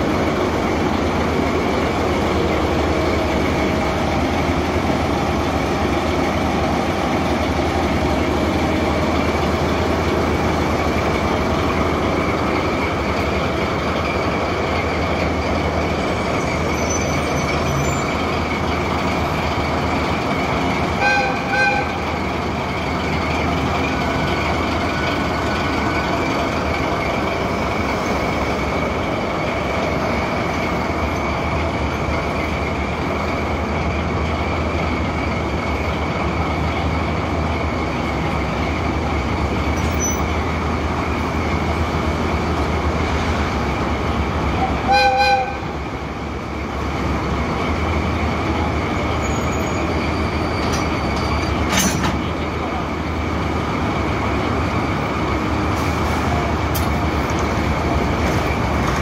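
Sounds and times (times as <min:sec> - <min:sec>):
diesel locomotive engine drone: 0:00.0 - 0:59.0
train horn toot: 0:21.0 - 0:22.0, 0:44.6 - 0:45.7.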